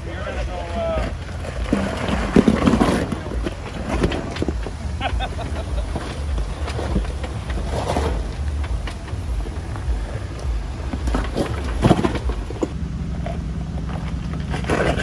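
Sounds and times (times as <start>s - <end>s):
engine rumbling low: 0.0s - 15.0s
tyres knocking and scraping on rock: 0.4s - 5.0s, 5.8s - 12.8s.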